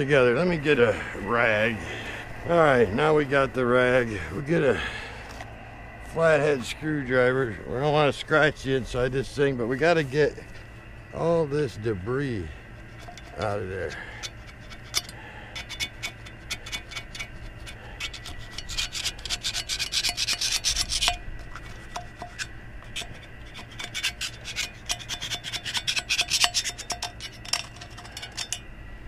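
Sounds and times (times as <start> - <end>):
screwdriver scratching metal: 12.8 - 28.7.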